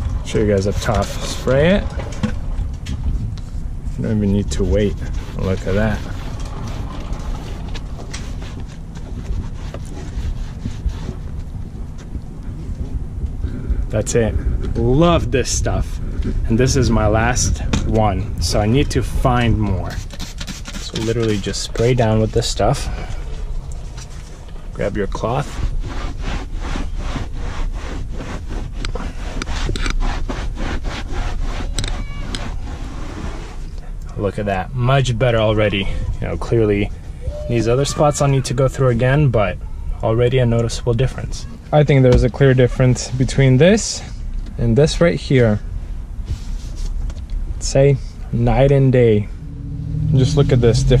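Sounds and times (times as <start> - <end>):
wind rumble on microphone: 0.0 - 33.8, 43.2 - 51.0
cloth rubbing on trim: 4.0 - 11.5, 19.3 - 33.7, 46.2 - 47.0.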